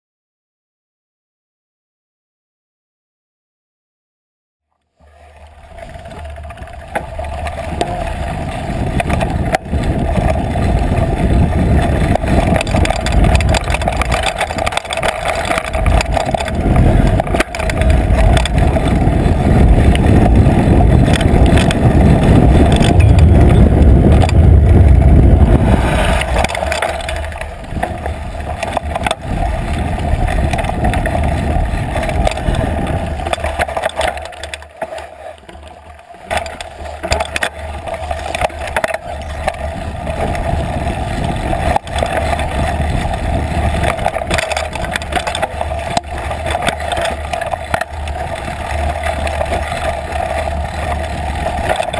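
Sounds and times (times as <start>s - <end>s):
mountain bike tyre rumble: 4.8s - 51.9s
bike knocks and rattles: 5.0s - 51.9s.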